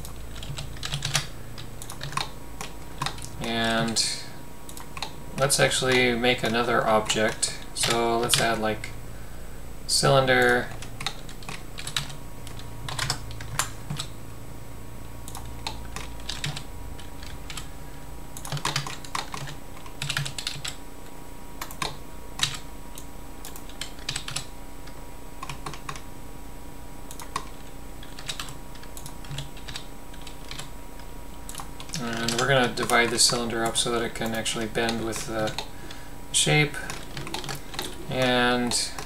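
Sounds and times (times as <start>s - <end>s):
keyboard keys tapping: 0.0s - 4.0s, 10.4s - 14.1s, 15.3s - 17.7s, 18.4s - 20.8s, 27.1s - 35.7s, 36.4s - 39.0s
faint steady hum: 0.0s - 39.0s.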